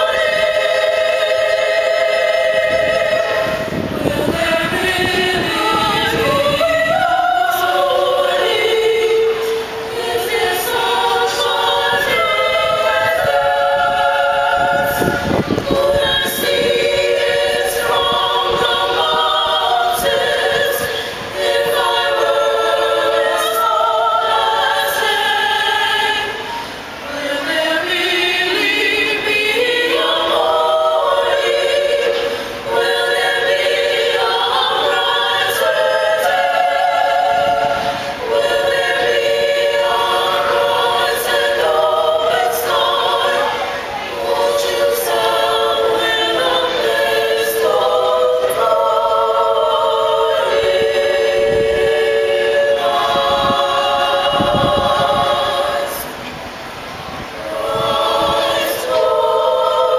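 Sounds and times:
women's choir singing: 0:00.0 - 0:59.9
singers breathing: 0:37.8 - 0:38.2.

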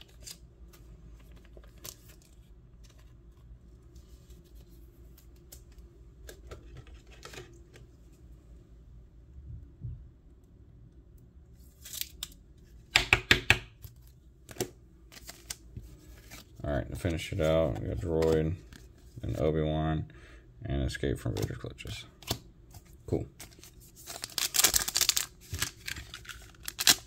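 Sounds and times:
cards rustling and clicking: 0:00.0 - 0:07.8, 0:13.8 - 0:19.5, 0:21.2 - 0:27.0.

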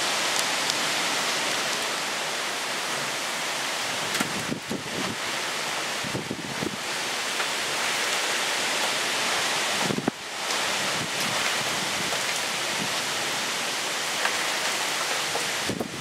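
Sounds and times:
gusting wind in trees: 0:00.0 - 0:16.0
heavy rain pouring: 0:00.0 - 0:16.0
wind buffeting microphone: 0:04.0 - 0:05.3, 0:05.9 - 0:07.0, 0:09.7 - 0:13.1, 0:15.5 - 0:16.0.

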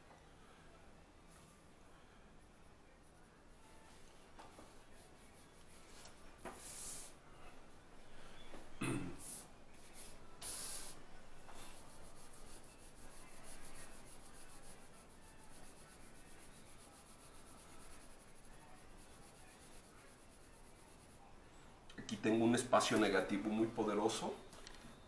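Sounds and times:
pencil shading on paper: 0:11.6 - 0:21.2.

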